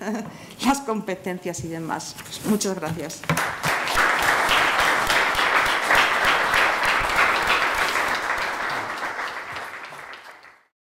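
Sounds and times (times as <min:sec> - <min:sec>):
audience applauding: 0:03.4 - 0:10.7.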